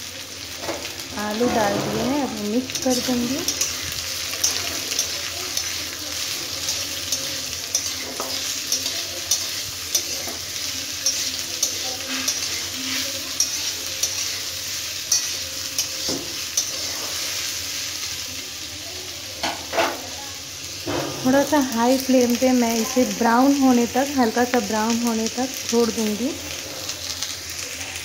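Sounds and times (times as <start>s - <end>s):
potatoes sizzling in hot oil: 0.0s - 28.0s
metal spatula scraping pan: 0.6s - 17.6s.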